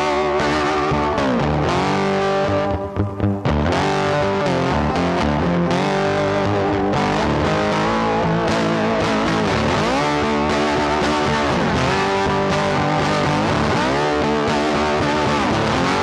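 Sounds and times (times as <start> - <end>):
guitar music with pitch bends: 0.0 - 16.0.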